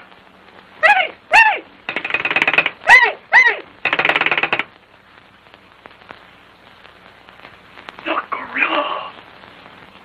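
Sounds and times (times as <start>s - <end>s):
high cartoon voice calls: 0.8s - 1.7s, 2.8s - 3.7s.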